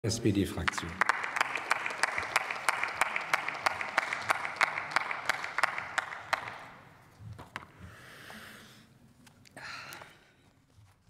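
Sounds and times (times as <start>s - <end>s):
group applause: 0.5s - 7.0s.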